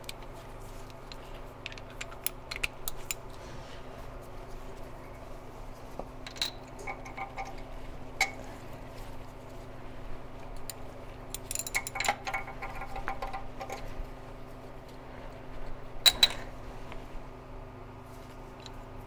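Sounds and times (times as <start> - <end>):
metal socket and wrench clinking: 10.6 - 13.8, 16.0 - 16.4.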